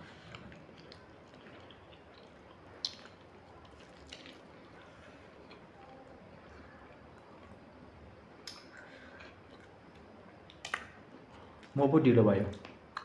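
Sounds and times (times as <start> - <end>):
wet chewing sounds: 0.0 - 6.1.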